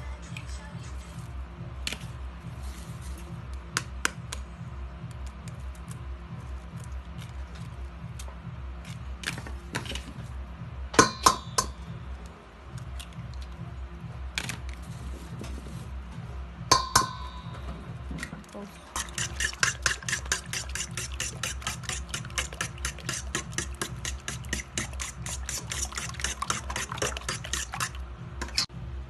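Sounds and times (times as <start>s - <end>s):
background music with low beat: 0.0s - 29.0s
eggs tapping on steel bowl: 16.7s - 17.4s, 19.0s - 27.9s.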